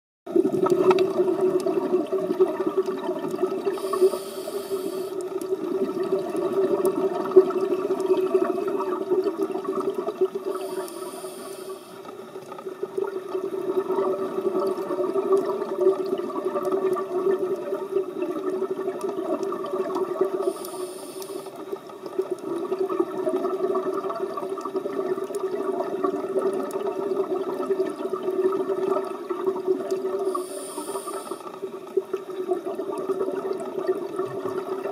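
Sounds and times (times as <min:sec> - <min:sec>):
regulator hissing inhalations: 0:03.7 - 0:05.2, 0:10.4 - 0:12.1, 0:20.4 - 0:21.6, 0:30.2 - 0:31.5.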